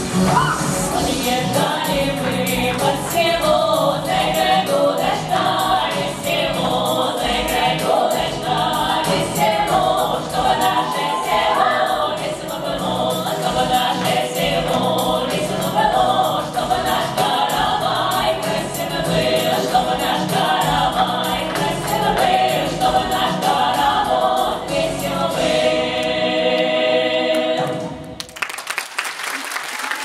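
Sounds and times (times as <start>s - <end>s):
rhythmic accompaniment: 0.0s - 28.4s
women's choir singing: 0.6s - 28.2s
applause: 28.2s - 30.0s.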